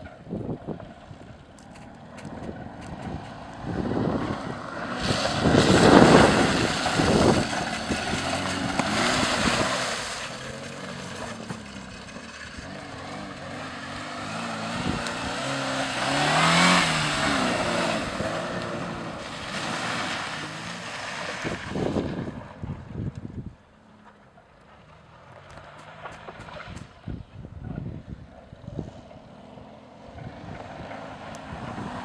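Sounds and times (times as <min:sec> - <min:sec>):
tyres churning through mud: 0:00.0 - 0:22.9, 0:24.1 - 0:27.1, 0:28.9 - 0:32.0
car engine revving: 0:00.7 - 0:22.6.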